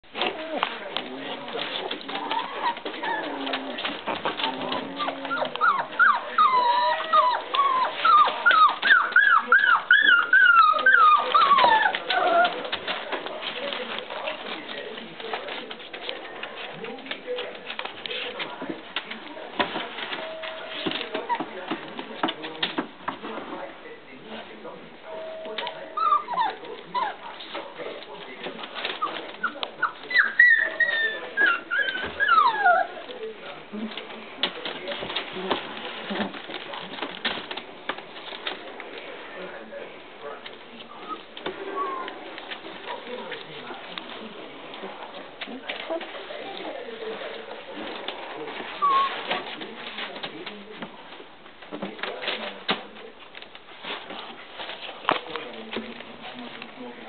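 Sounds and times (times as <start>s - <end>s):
puppies whining and squeaking: 0.1s - 13.0s, 20.0s - 21.6s, 25.4s - 27.5s, 28.8s - 33.1s, 40.9s - 42.3s, 48.7s - 49.4s.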